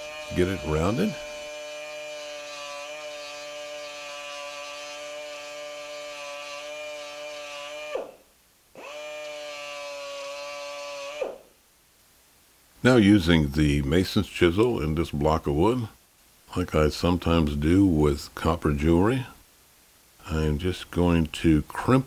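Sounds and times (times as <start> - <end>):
tube sander whining: 0.0 - 8.2.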